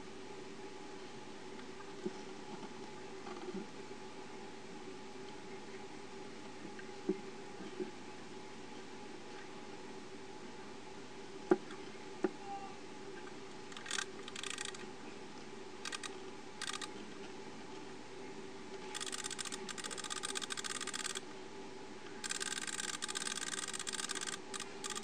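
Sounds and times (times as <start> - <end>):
clock movement clicking rapidly: 13.7 - 14.8, 15.8 - 16.9, 18.9 - 21.2, 22.2 - 25.0.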